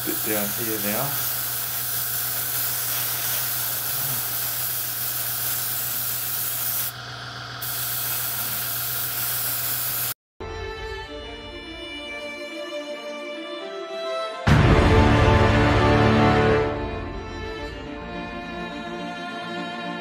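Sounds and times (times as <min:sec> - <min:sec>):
airbrush spraying hiss: 0:00.0 - 0:07.0, 0:07.6 - 0:10.2
music: 0:10.4 - 0:20.0.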